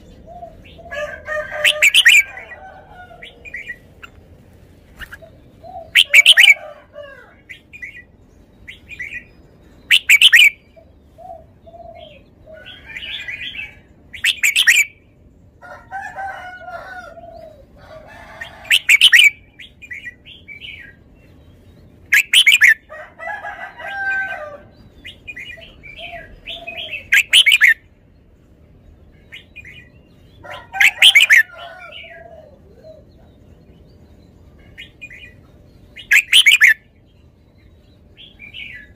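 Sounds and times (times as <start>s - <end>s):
bird whistled phrases: 9.9s - 10.6s, 26.0s - 27.8s, 36.0s - 36.8s.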